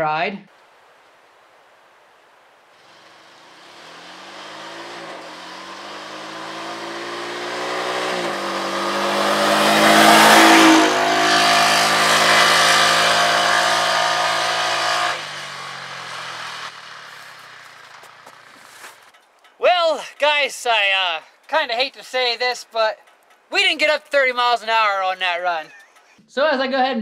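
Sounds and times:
engine accelerating: 2.8s - 20.3s.

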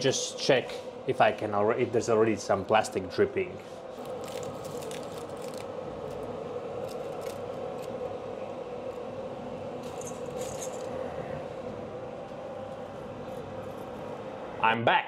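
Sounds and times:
exhaust fan whirring: 0.0s - 15.0s
clinks and scrapes of parts: 9.8s - 11.0s.

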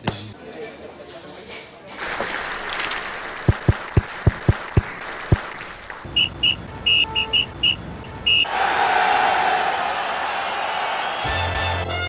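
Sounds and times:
traffic noise: 3.9s - 9.1s
whistle blasts: 6.1s - 8.5s.

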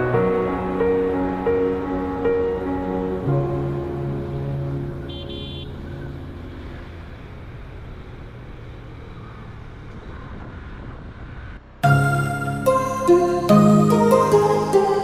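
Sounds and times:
background music: 0.0s - 6.6s, 11.8s - 15.0s
road traffic noise: 0.0s - 15.0s
high horn toot: 5.0s - 5.9s.

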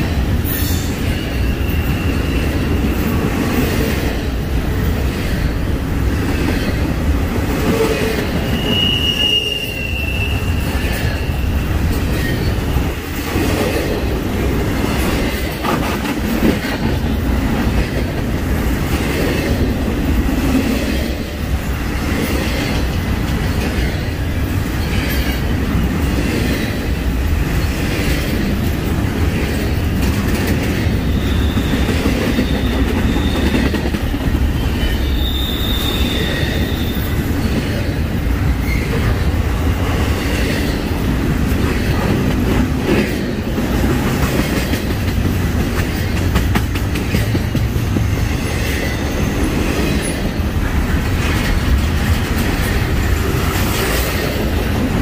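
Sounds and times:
train wheels rumbling on rails: 0.0s - 55.0s
high wheel squeals: 1.2s - 2.7s, 7.8s - 12.6s, 31.0s - 33.7s, 34.5s - 37.4s.

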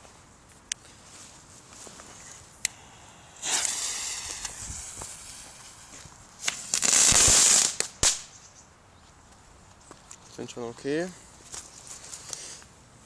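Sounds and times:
firework fuse hissing: 2.0s - 8.3s
firework crackling burst: 2.6s - 8.3s
sharp firework cracks: 2.6s - 8.3s.

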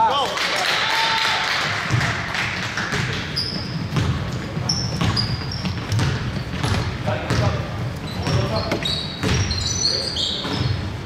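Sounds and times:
basketball bouncing on gym floor: 1.8s - 9.8s, 10.4s - 10.9s
sneaker squeaks: 2.9s - 11.0s.

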